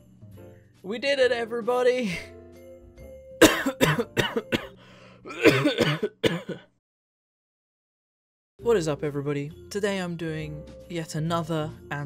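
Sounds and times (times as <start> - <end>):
man coughing: 3.4 - 6.8.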